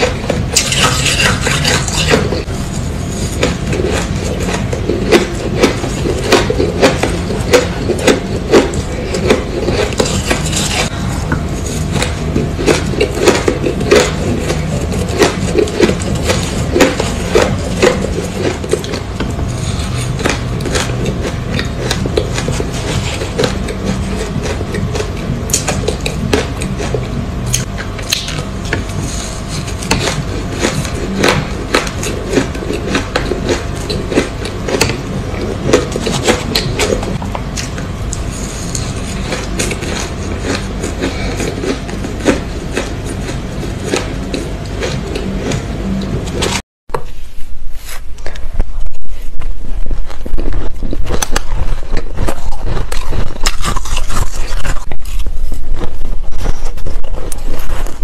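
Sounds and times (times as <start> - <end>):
spoon scraping ice in bowl: 0.0 - 25.9
crunching shaved ice: 0.0 - 46.6, 50.2 - 58.0.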